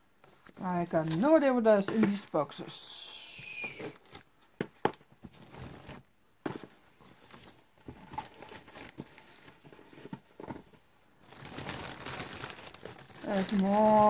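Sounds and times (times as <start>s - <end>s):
cardboard boxes handled: 3.5s - 14.0s.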